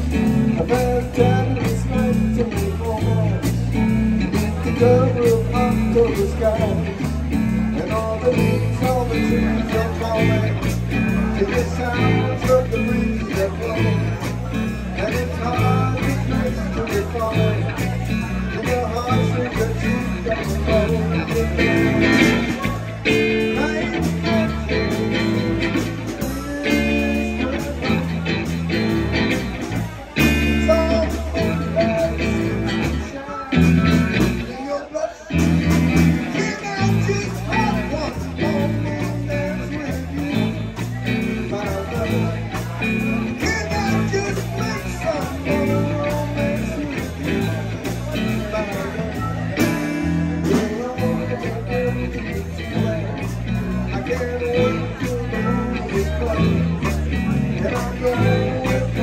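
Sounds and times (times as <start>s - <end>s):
drums: 0.0s - 59.0s
electric bass: 0.0s - 59.0s
electric guitar: 0.0s - 59.0s
person singing: 0.0s - 59.0s.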